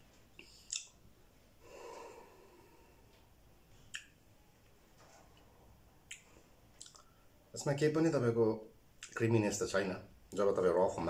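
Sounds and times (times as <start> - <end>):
lip-smack click: 0.7 - 0.9.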